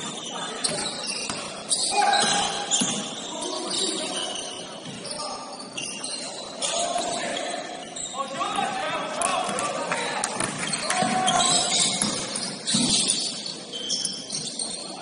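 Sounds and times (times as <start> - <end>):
sneakers squeaking: 0.0 - 15.0
ball bouncing: 9.2 - 13.2.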